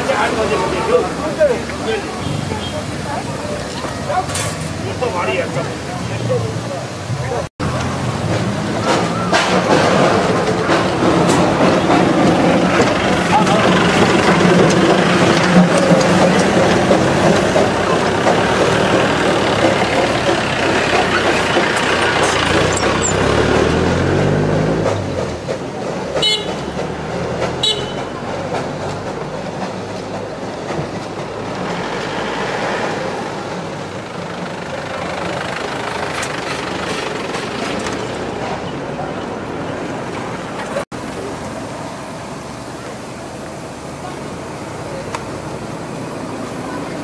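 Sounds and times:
steam locomotive hissing: 0:00.0 - 0:47.0
street and traffic noise: 0:00.0 - 0:47.0
engine revving: 0:07.6 - 0:29.1.

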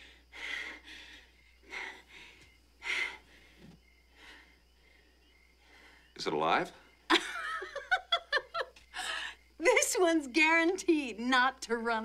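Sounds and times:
breathy puffs of breath: 0:00.0 - 0:06.1.

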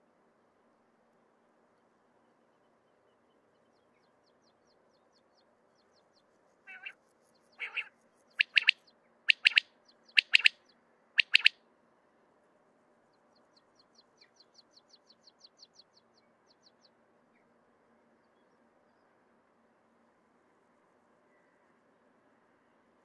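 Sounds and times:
quail singing: 0:06.7 - 0:10.6, 0:11.2 - 0:11.6
faint rapid high ticking: 0:08.4 - 0:09.6, 0:10.2 - 0:10.5, 0:11.2 - 0:11.5.

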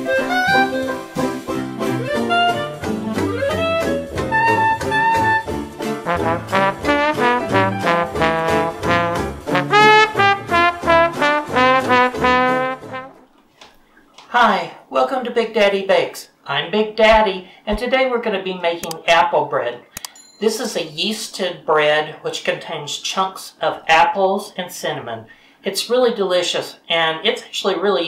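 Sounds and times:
jazz instrumental music: 0:00.0 - 0:13.4.

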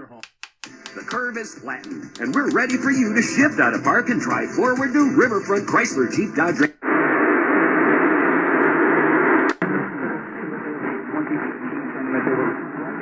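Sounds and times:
radio static hiss: 0:05.4 - 0:13.0
radio tuning click: 0:06.8 - 0:13.0.

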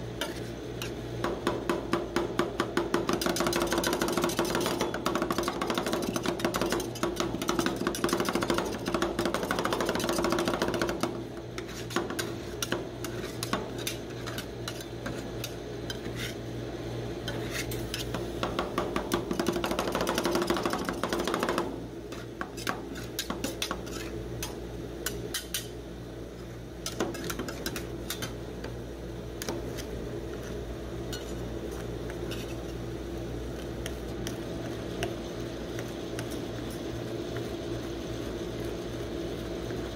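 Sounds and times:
spatula scraping: 0:00.0 - 0:01.0, 0:03.1 - 0:16.5, 0:17.2 - 0:18.3, 0:22.1 - 0:25.8, 0:26.8 - 0:28.4, 0:29.4 - 0:37.7.

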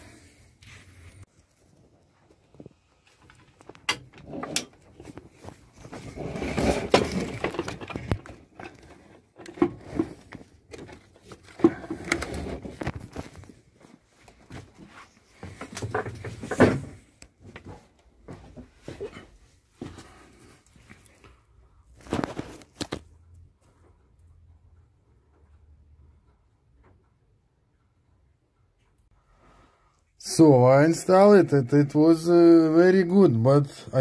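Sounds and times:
clunks and knocks on gearbox: 0:15.6 - 0:17.0.

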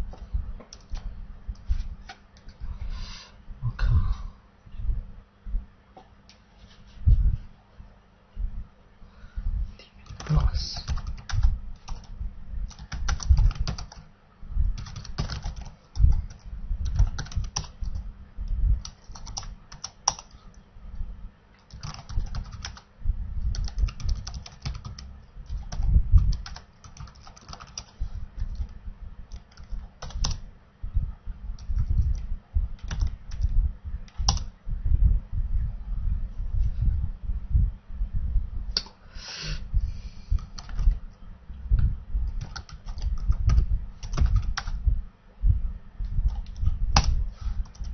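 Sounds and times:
typing on computer keyboard: 0:10.0 - 0:12.1, 0:12.7 - 0:14.0, 0:14.8 - 0:18.0, 0:18.8 - 0:20.4, 0:21.6 - 0:22.8, 0:23.5 - 0:28.7, 0:29.3 - 0:30.4, 0:32.8 - 0:33.5, 0:40.4 - 0:41.0, 0:42.3 - 0:44.8, 0:46.3 - 0:47.9.

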